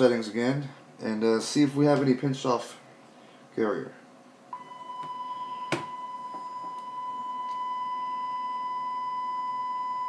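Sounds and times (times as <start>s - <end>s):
sine test tone: 4.5s - 10.0s.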